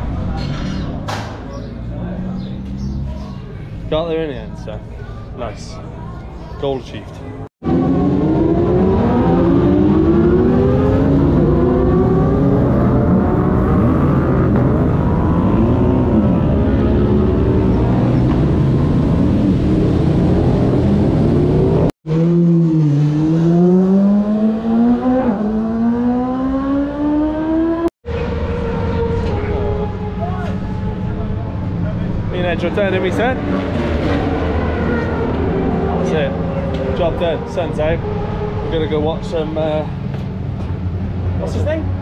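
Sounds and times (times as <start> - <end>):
superbike engines revving: 7.6 - 42.0.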